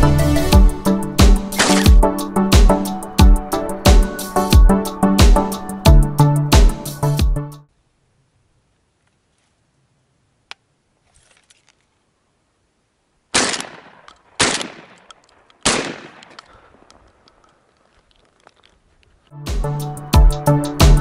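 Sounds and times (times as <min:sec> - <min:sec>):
shotgun shots echoing: 0:01.5 - 0:02.0, 0:13.3 - 0:17.0.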